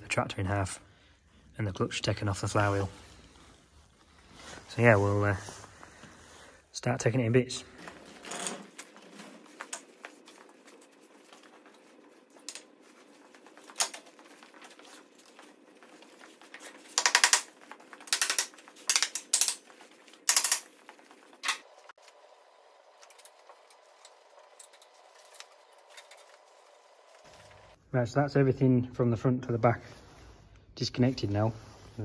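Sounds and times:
hand tools clattering: 7.8s - 21.9s.

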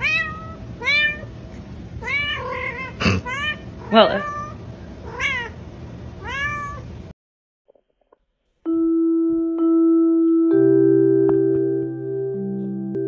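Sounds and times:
cat meowing: 0.0s - 1.3s, 2.0s - 5.6s, 6.2s - 6.9s
soft music of long held notes: 8.7s - 13.0s.

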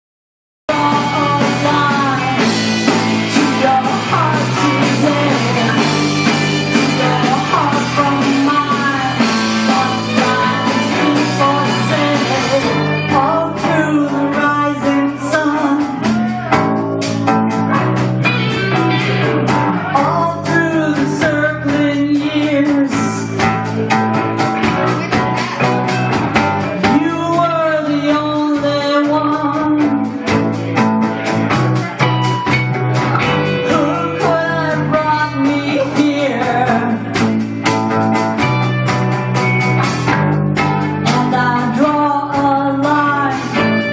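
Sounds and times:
woman singing: 0.7s - 16.4s, 19.8s - 23.8s, 26.6s - 30.4s, 33.2s - 37.5s, 40.9s - 43.9s
drum kit: 0.7s - 43.9s
electric guitars: 0.7s - 43.9s.

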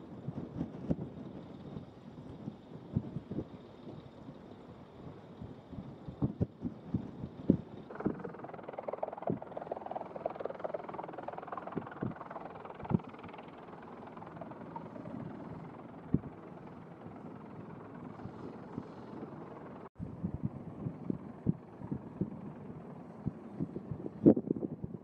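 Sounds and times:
helicopter rotor and turbine noise: 0.0s - 25.0s.

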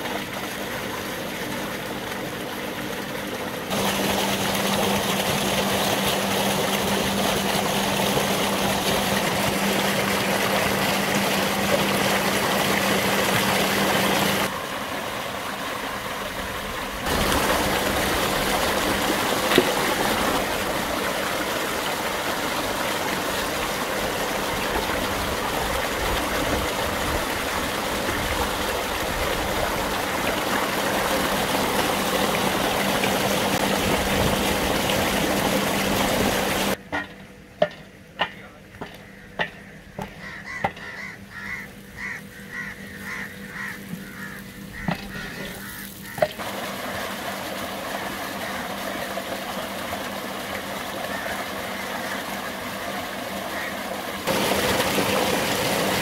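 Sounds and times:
water gushing into a tank: 0.0s - 36.8s, 43.1s - 56.0s
wooden paddle knocking metal pot: 36.9s - 40.9s.

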